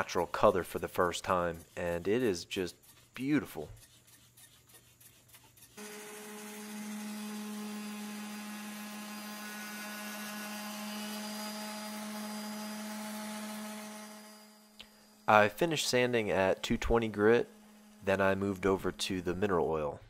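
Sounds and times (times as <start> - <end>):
orbital sander humming on wood: 5.7 - 19.3.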